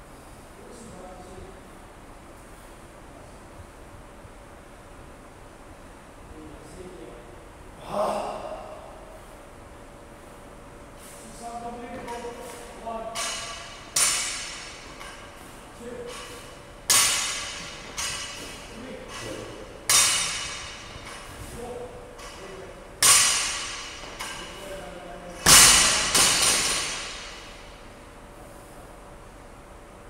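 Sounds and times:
barbell thudding on floor: 25.4s - 27.6s.

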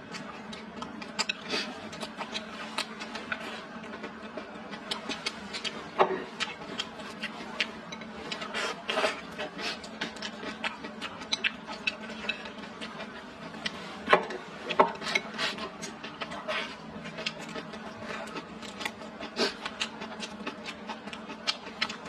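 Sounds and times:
chewing and mouth smacks: 0.1s - 13.8s.

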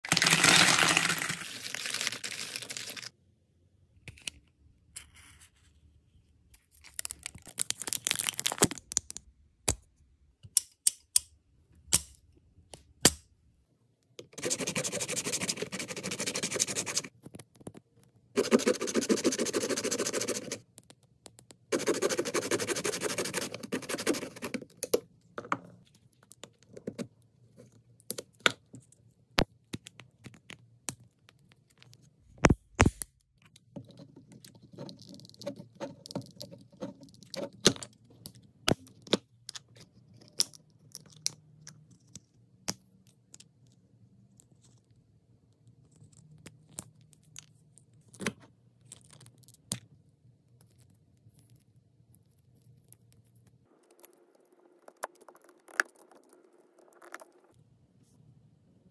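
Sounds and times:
plastic capsule cracking: 6.9s - 9.8s.

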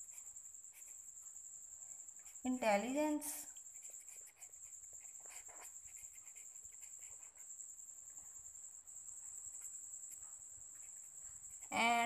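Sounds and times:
pen scratching on paper: 0.0s - 1.1s, 3.6s - 7.5s, 9.5s - 12.0s.

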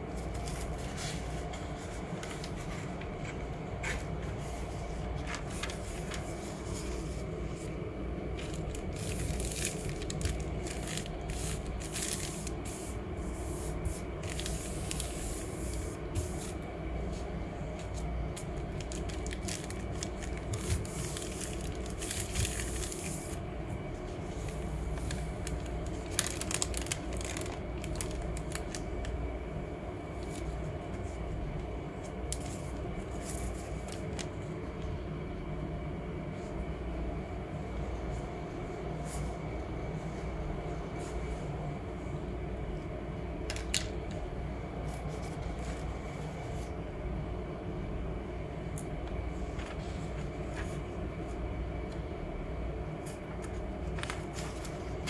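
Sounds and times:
paper rustling and scraping: 0.1s - 23.4s, 24.0s - 29.2s, 32.0s - 34.5s, 44.8s - 46.8s, 49.3s - 51.4s, 53.0s - 55.0s.

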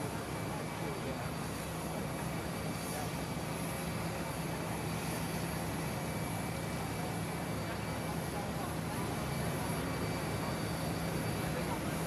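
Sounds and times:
jet aircraft running: 0.0s - 12.0s.

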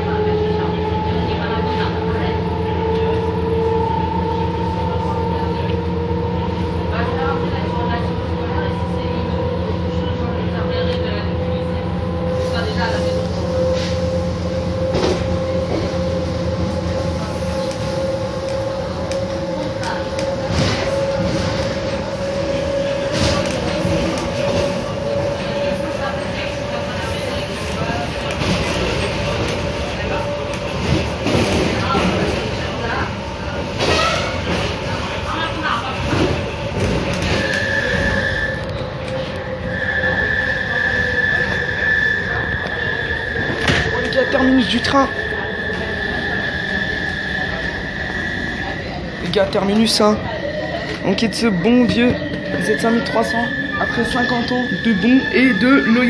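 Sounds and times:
electric train running hum: 0.0s - 56.0s
high-pitched wheel squeal: 37.3s - 49.5s, 50.3s - 56.0s.

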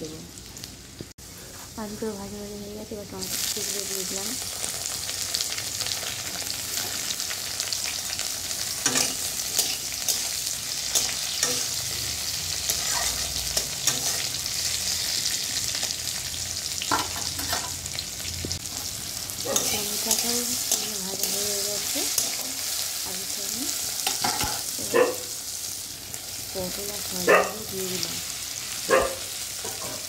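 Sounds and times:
vegetables sizzling in hot oil: 0.0s - 30.0s
spatula scraping metal pan: 12.7s - 14.4s.

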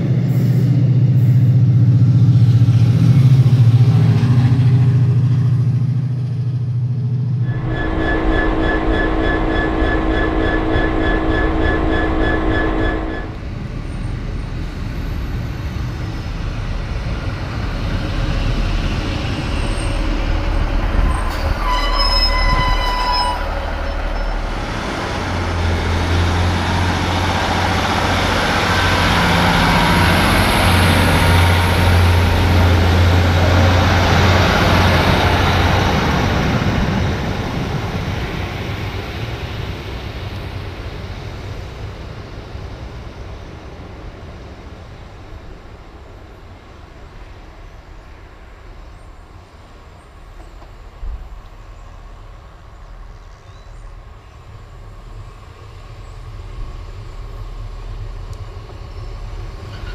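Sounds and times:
low diesel engine drone: 0.0s - 21.3s, 23.2s - 48.1s
locomotive engine humming: 0.0s - 59.9s
train rolling along platform: 0.0s - 59.9s
high wheel squeal: 7.5s - 13.4s, 21.0s - 24.8s.

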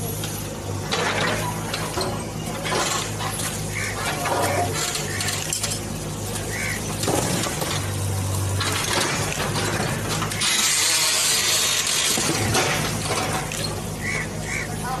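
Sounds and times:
diesel engine running: 0.0s - 15.0s
falling bricks and rubble: 0.9s - 13.8s
masonry crumbling and breaking: 2.4s - 13.9s.

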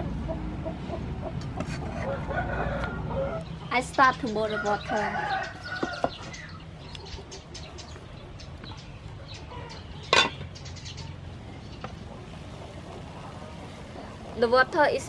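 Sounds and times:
chickens clucking: 0.0s - 14.9s
metal pot lid clanking: 10.1s - 10.5s.

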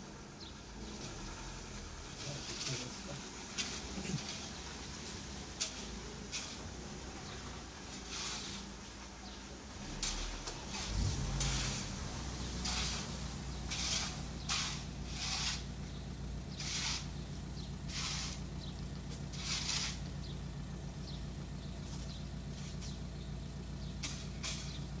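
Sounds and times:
broom sweeping wet ground: 0.8s - 25.0s.

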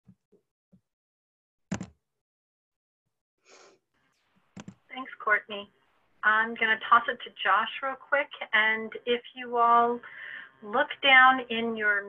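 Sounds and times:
sharp breath noise: 3.4s - 3.8s, 10.0s - 10.6s.

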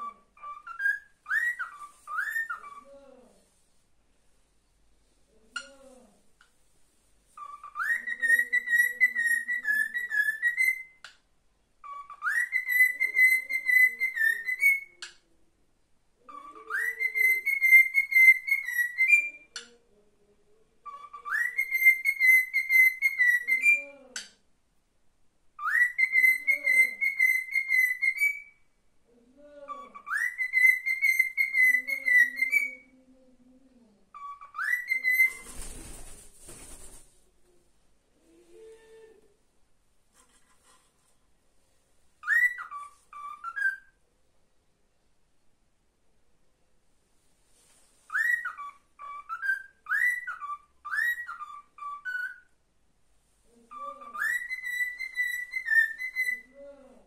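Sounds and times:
cockatiel whistling: 0.0s - 2.9s, 7.4s - 11.1s, 11.8s - 15.1s, 16.4s - 19.6s, 20.8s - 23.8s, 25.6s - 28.6s, 29.8s - 32.8s, 34.2s - 35.5s, 42.2s - 44.0s, 48.1s - 52.5s, 53.7s - 56.6s
bird wingbeats: 35.3s - 37.2s.

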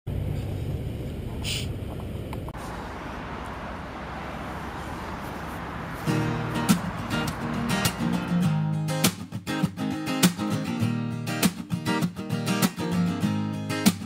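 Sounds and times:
guitar music: 6.0s - 14.0s.

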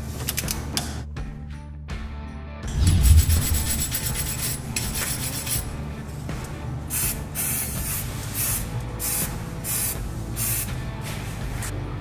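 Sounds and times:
aerosol can spraying: 6.9s - 11.4s.

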